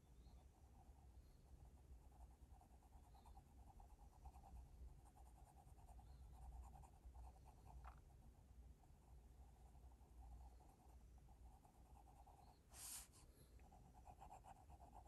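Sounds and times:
pencil scratching on paper: 0:10.2 - 0:15.0.

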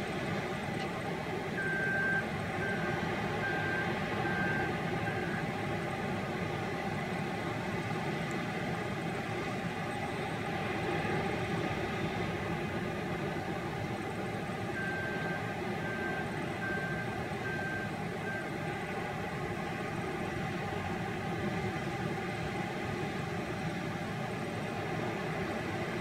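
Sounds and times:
diesel engine running: 0:00.0 - 0:26.0
reversing alarm beeping: 0:01.6 - 0:05.5, 0:14.7 - 0:18.6.

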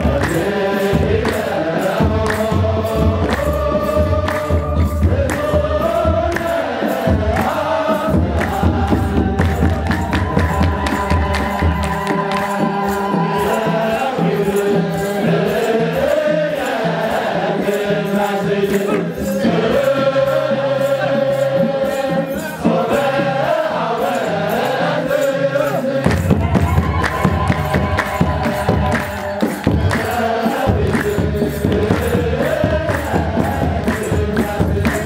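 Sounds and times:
deep drum beat: 0:00.0 - 0:14.4, 0:26.0 - 0:35.0
group chanting a hymn: 0:00.0 - 0:35.0.

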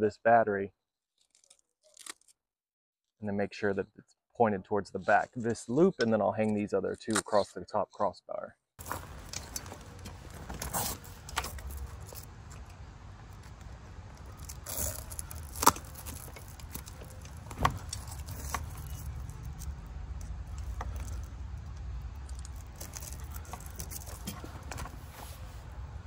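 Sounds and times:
fabric bag rustling: 0:08.8 - 0:12.3, 0:14.2 - 0:19.8
hook-and-loop strap rasp: 0:08.8 - 0:25.6
steady low rumble: 0:08.8 - 0:26.0.

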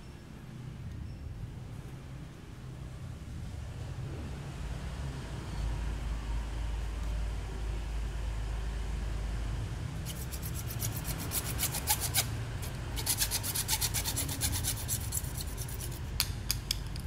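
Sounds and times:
hacksaw cutting plastic pipe: 0:10.0 - 0:16.8.

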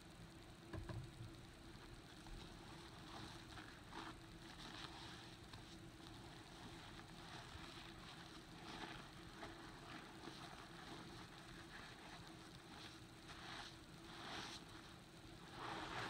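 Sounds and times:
low steady hum: 0:00.0 - 0:16.0
sponge scrubbing wet carpet: 0:02.4 - 0:16.0.

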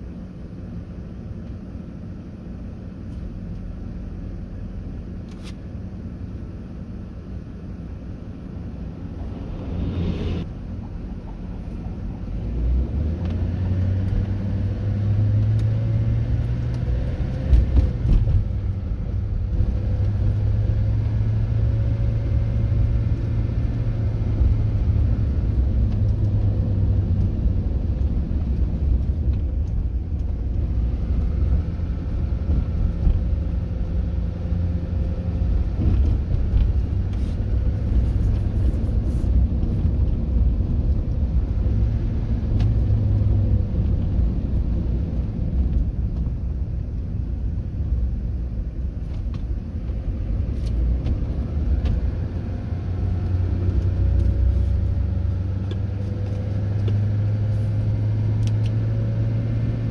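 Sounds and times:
car engine hum: 0:00.0 - 0:59.9
road noise rumble: 0:00.0 - 0:59.9.

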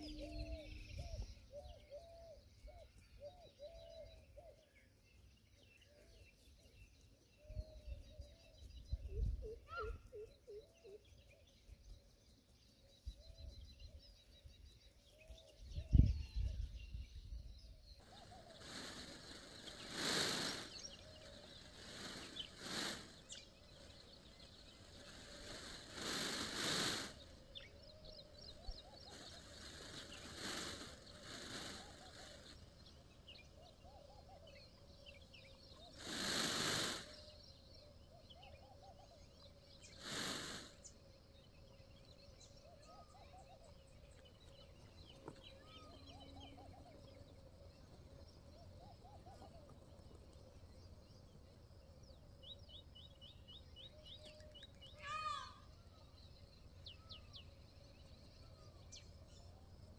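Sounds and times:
birds chirping faintly: 0:00.0 - 0:59.9
rustling bursts: 0:18.0 - 0:27.5, 0:29.1 - 0:32.6.

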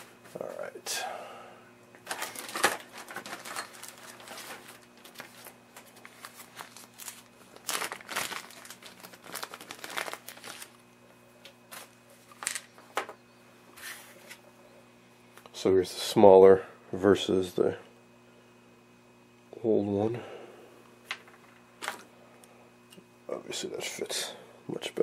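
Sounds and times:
plastic bag crinkling: 0:02.1 - 0:10.9, 0:11.7 - 0:12.8.

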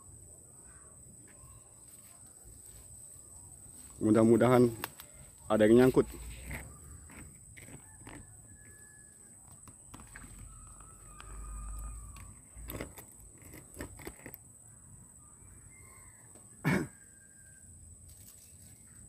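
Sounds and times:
distant high calls: 0:10.1 - 0:12.7.

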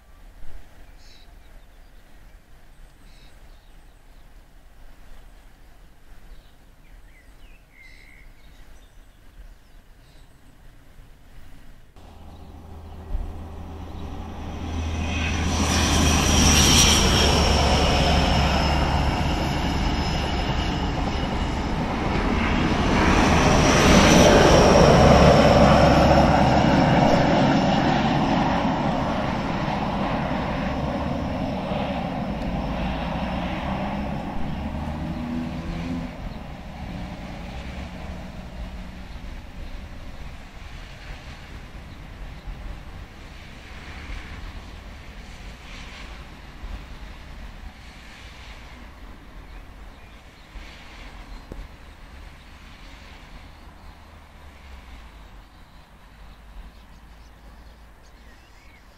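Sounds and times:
wheels rumbling on rails: 0:12.0 - 0:58.8.

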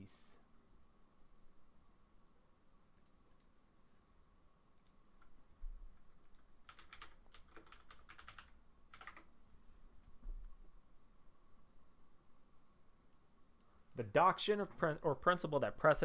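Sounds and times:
typing on computer keyboard: 0:06.2 - 0:09.3.

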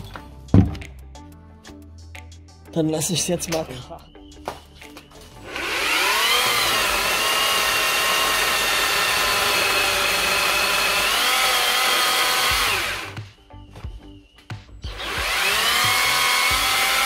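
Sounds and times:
chainsaw cutting wood: 0:05.4 - 0:13.3, 0:14.9 - 0:17.0.

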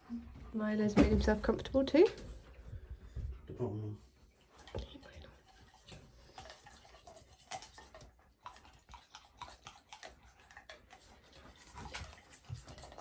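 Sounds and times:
toothbrush bristles scrubbing teeth: 0:04.4 - 0:13.0.

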